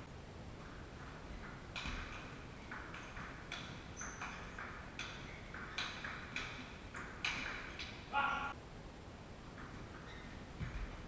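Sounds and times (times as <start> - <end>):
ball bouncing on table: 0.6 - 8.1, 9.6 - 11.0
table tennis ball clicking off bats: 0.6 - 8.1.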